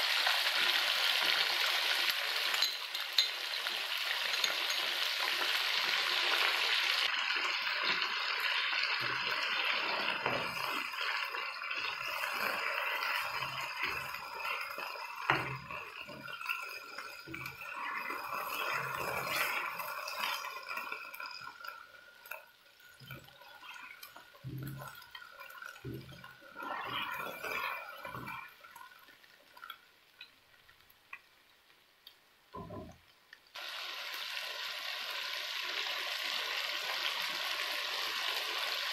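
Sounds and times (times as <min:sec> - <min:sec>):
meat sizzling in a wok: 0:00.0 - 0:22.4, 0:33.6 - 0:38.9
spatula scraping a pan: 0:07.8 - 0:21.6, 0:23.0 - 0:28.4.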